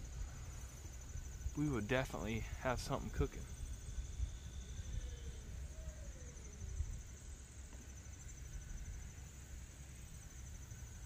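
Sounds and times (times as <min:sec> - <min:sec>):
wind rumble on microphone: 0:00.0 - 0:07.7
insects trilling: 0:00.0 - 0:11.0.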